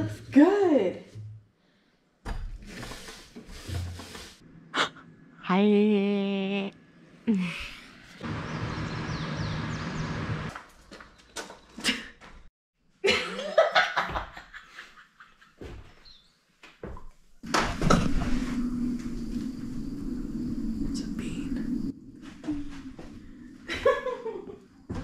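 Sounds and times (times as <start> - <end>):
people laughing: 13.0 - 15.7, 23.7 - 24.6.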